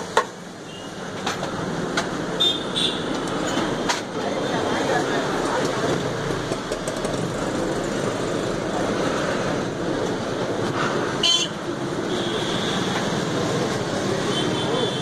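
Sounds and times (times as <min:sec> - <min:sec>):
road traffic noise: 0:00.0 - 0:15.0
vehicle horn honking: 0:02.4 - 0:03.1, 0:11.2 - 0:12.9.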